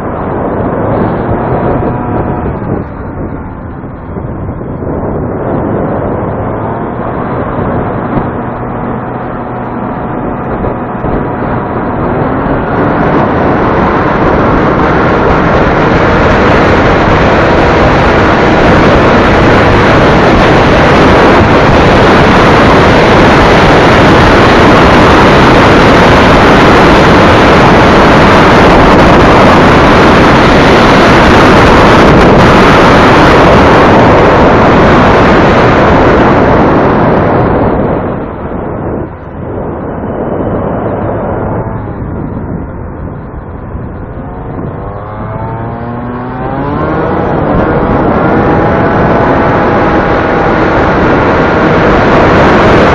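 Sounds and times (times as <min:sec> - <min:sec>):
wind buffeting microphone: 0:00.0 - 0:52.9.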